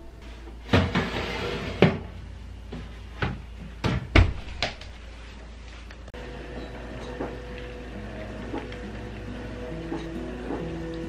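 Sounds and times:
baking dish scraping on oven rack: 0.6 - 2.1.

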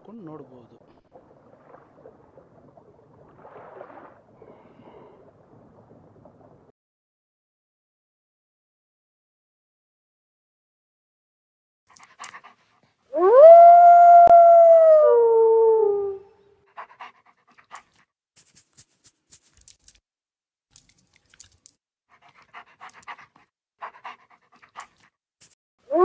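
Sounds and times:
wolf howl: 13.1 - 16.4.

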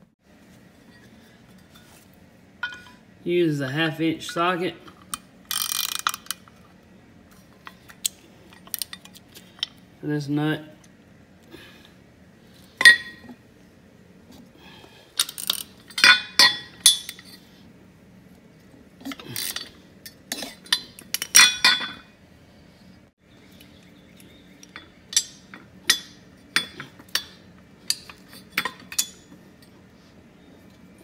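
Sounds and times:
metal wrench clinking: 2.6 - 3.0, 15.2 - 17.4, 19.1 - 22.1, 24.7 - 29.7
ratchet clicks: 5.1 - 6.4.

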